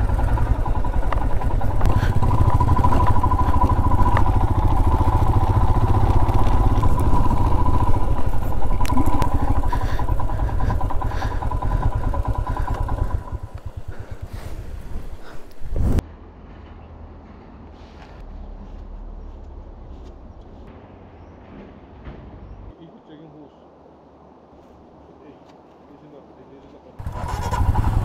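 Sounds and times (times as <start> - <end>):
motorcycle engine running: 0.0 - 16.0, 27.0 - 28.0.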